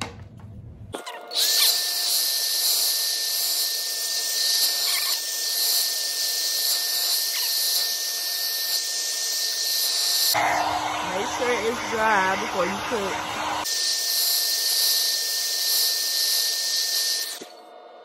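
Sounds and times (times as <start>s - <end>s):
hair dryer blowing: 9.6s - 13.8s.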